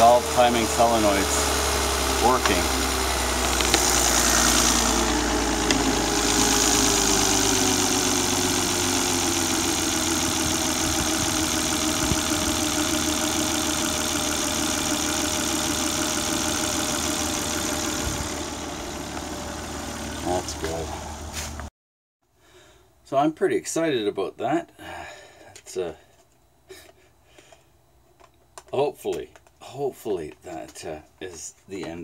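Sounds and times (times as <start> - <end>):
car engine idling: 0.0 - 21.7.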